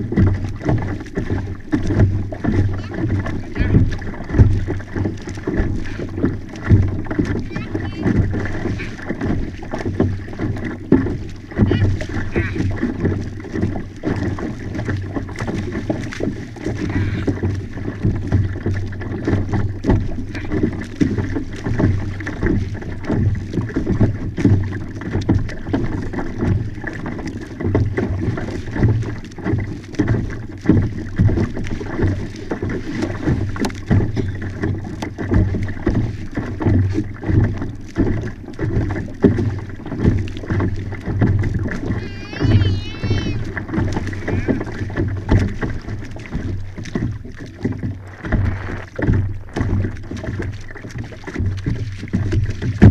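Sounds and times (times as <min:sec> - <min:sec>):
water rushing along kayak hull: 0:00.0 - 0:52.9
wind on microphone: 0:41.8 - 0:45.5.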